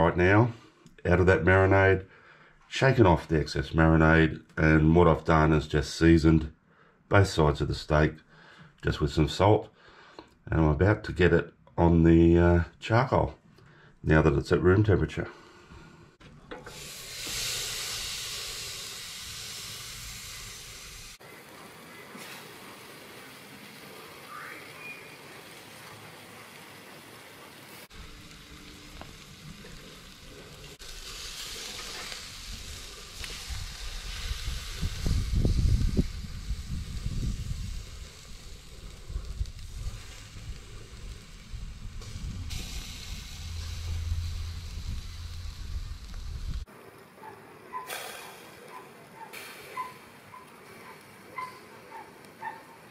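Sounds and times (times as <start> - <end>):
steak sizzling on grill: 16.6 - 46.9, 49.3 - 52.9
low uneven rumble: 27.9 - 46.7.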